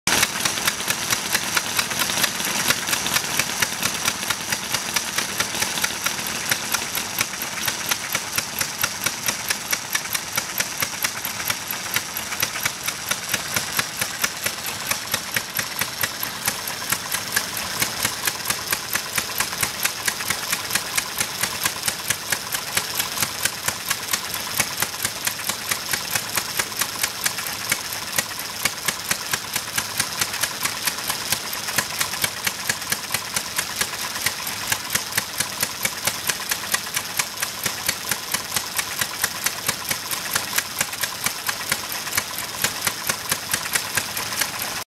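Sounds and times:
stationary engine running: 0.1s - 44.8s
rapid mechanical ticking: 0.1s - 44.9s.

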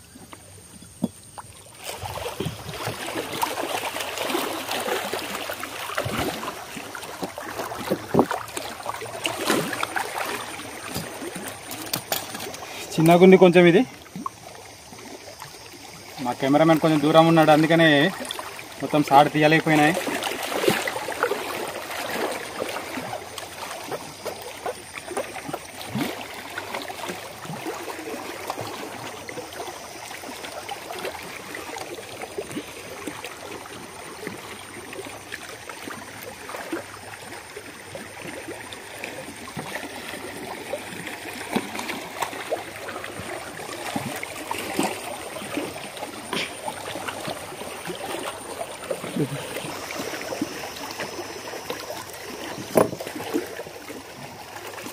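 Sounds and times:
small waves lapping against rocks: 0.0s - 54.9s
small knocks: 0.8s - 1.2s.

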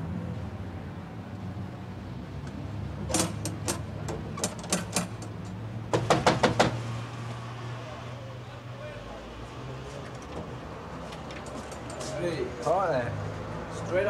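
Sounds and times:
knocks on a front door: 5.9s - 6.8s.

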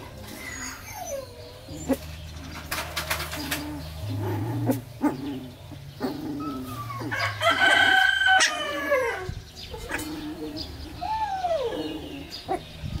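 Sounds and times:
rooster crowing: 7.1s - 9.3s.

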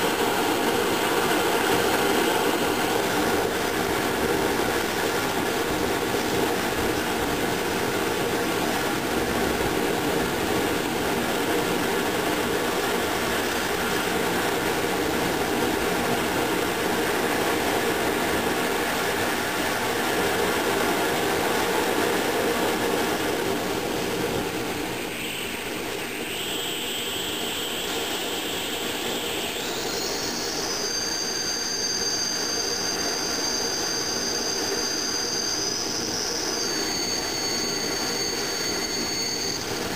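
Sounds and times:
high thin whistle: 24.8s - 39.9s.

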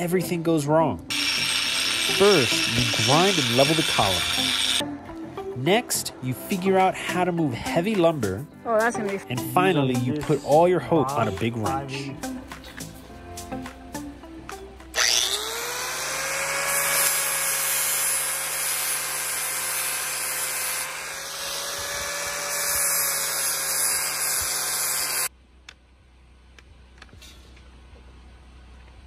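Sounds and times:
angle grinder grinding concrete: 1.1s - 4.8s, 14.9s - 25.3s.

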